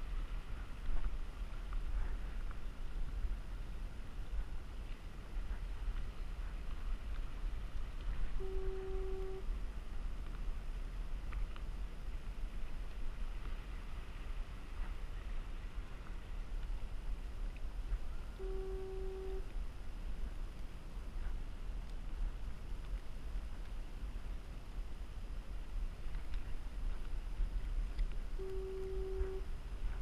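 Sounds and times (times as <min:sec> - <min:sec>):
low rumble: 0:00.0 - 0:30.0
fog horn blast: 0:08.4 - 0:09.5, 0:18.4 - 0:19.5, 0:28.4 - 0:29.5.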